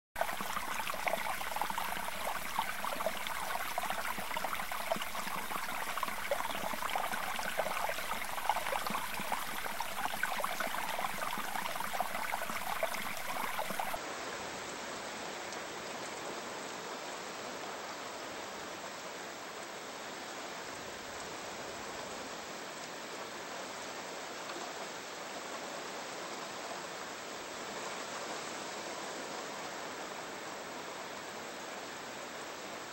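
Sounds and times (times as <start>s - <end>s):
underwater water rushing: 0.2s - 14.0s.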